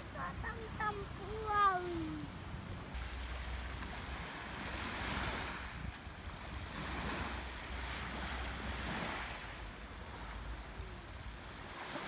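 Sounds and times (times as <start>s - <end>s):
wind rumble on microphone: 0.0s - 12.0s
waves washing over pebbles: 3.0s - 12.0s.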